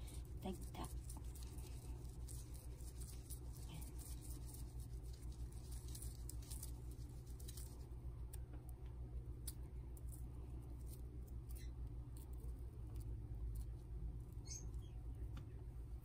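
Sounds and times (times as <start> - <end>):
faint rubbing and scraping: 0.0 - 7.9
steady low hum: 0.0 - 16.0.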